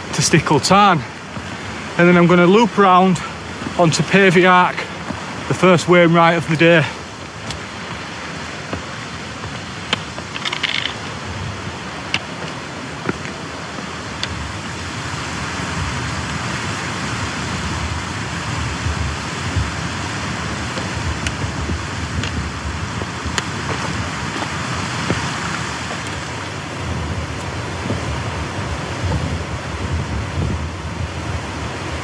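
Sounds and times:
stream rushing over rocks: 0:00.0 - 0:32.0
wind buffeting microphone: 0:00.0 - 0:32.0
trekking pole clicks on rock: 0:09.9 - 0:11.1.

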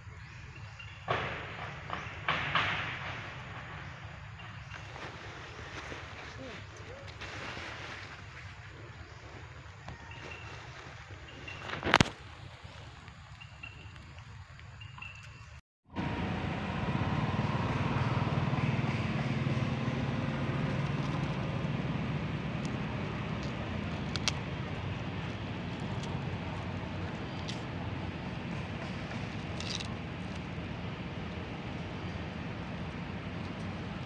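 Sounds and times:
low rumble of motor traffic: 0:00.0 - 0:11.6, 0:15.9 - 0:34.0
faint sharp clicks: 0:22.6 - 0:24.5.

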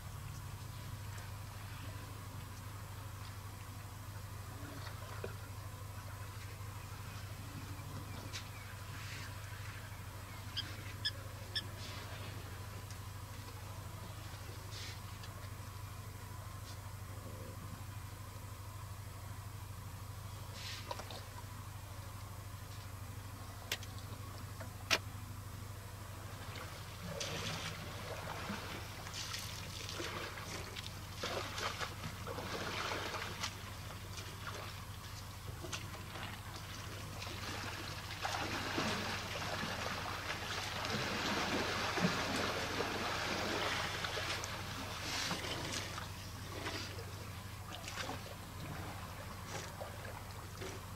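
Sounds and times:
steady low hum: 0:00.0 - 0:50.9
water splashing and trickling: 0:26.3 - 0:50.9.

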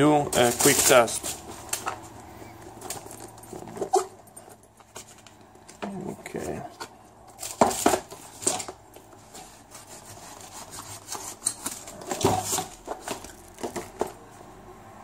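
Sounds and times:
cardboard packaging scraping: 0:00.0 - 0:04.2, 0:06.3 - 0:14.2
knife cutting cardboard: 0:09.3 - 0:13.8.

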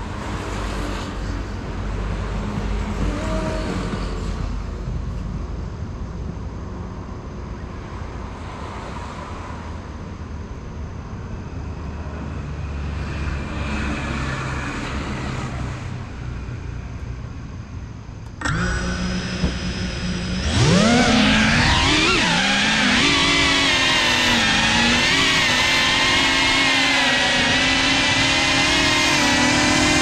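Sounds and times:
road traffic: 0:00.0 - 0:30.0
drone motors whining: 0:18.2 - 0:30.0.

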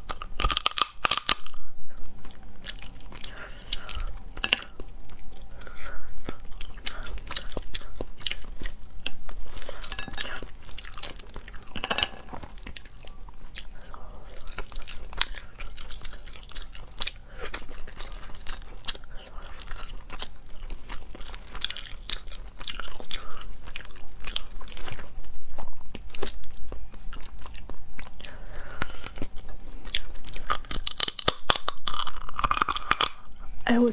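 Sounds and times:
crab shell cracking: 0:00.0 - 0:01.6, 0:27.6 - 0:33.3
chewing: 0:00.0 - 0:33.4.

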